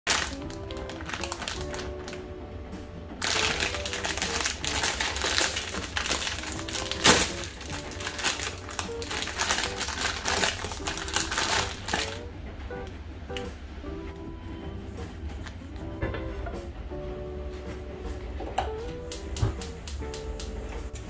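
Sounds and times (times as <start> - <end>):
plastic packet crinkling and tearing: 0.1 - 2.2, 3.2 - 12.2
background music: 0.1 - 21.0.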